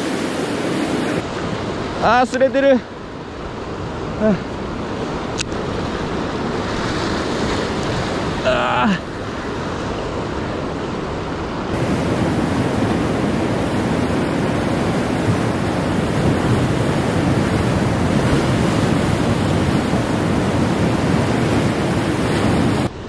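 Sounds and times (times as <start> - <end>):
surf on rocky shore: 0.0 - 23.0
wind on microphone: 11.7 - 23.0.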